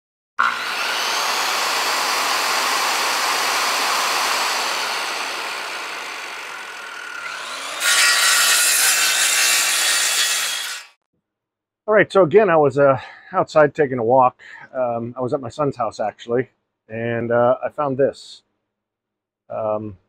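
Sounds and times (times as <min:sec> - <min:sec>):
rotary tool grinding wood: 0:00.4 - 0:11.0.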